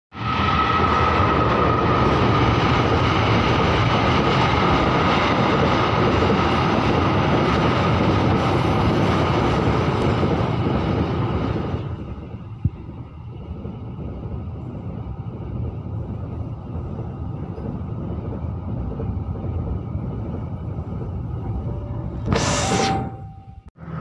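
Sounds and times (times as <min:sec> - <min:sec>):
freight train rumbling on rails: 0:00.1 - 0:24.0
high ringing tone: 0:21.4 - 0:23.8.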